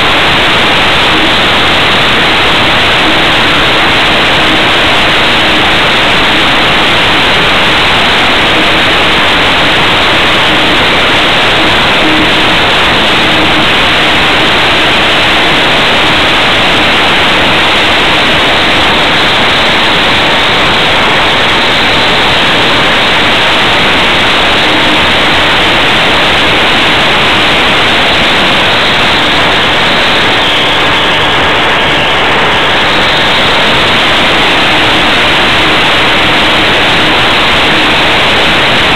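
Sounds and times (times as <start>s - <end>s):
propeller noise: 0.0s - 38.9s.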